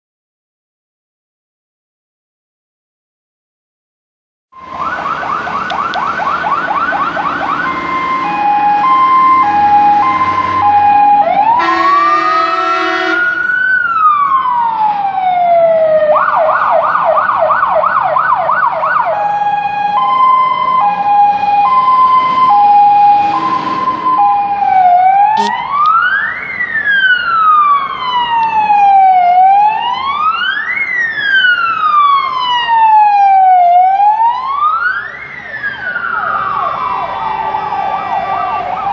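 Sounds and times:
fire engine sirens: 0:04.6 - 0:38.9
air horn blast: 0:11.5 - 0:13.6, 0:25.3 - 0:25.6.

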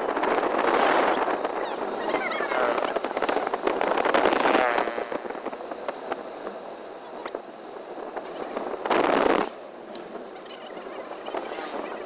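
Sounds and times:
microphone crackling: 0:00.0 - 0:06.1
wind and road noise from car: 0:00.0 - 0:12.0.

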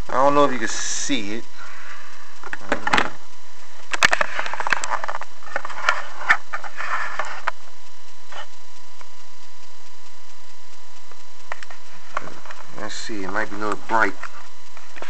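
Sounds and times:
faint steady hum: 0:00.0 - 0:15.0
camera handling rustles and clicks: 0:02.4 - 0:03.2, 0:03.9 - 0:07.6.

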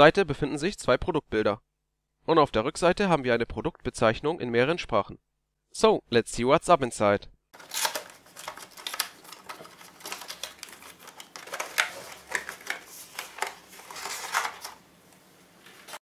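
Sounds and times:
cardboard and plastic crackling: 0:07.6 - 0:14.9.

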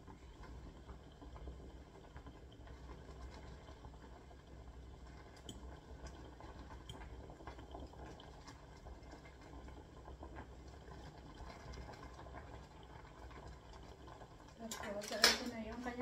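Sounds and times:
water boiling softly: 0:00.0 - 0:16.0
utensil clicking against pot: 0:14.5 - 0:15.9.

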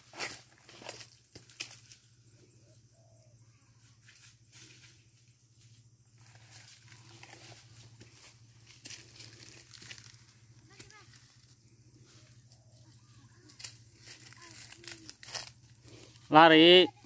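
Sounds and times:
rustling: 0:06.2 - 0:16.3.

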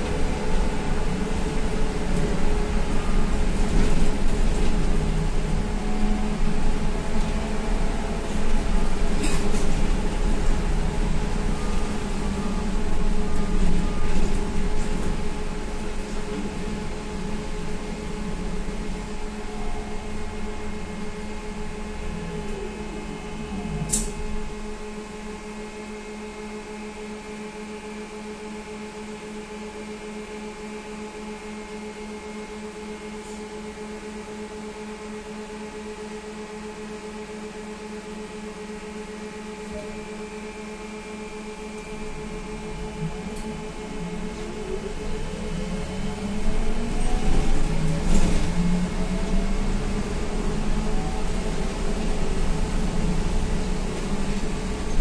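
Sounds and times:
vehicle rumble: 0:00.0 - 0:25.5.

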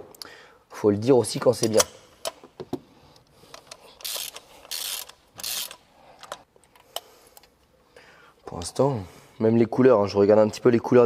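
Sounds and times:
ratchet wrench clicking: 0:04.0 - 0:05.8.

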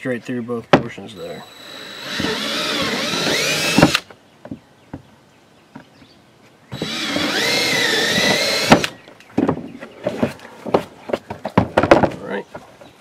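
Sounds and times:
cordless drill whining: 0:01.2 - 0:04.1, 0:06.7 - 0:09.0.

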